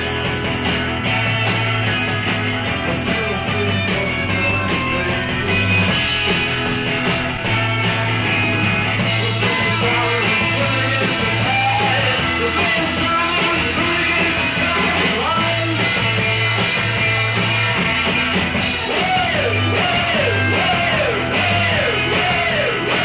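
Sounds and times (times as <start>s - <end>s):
bass guitar long notes: 0.0s - 23.0s
drums and cymbals: 0.0s - 23.0s
electric guitars: 0.0s - 23.0s.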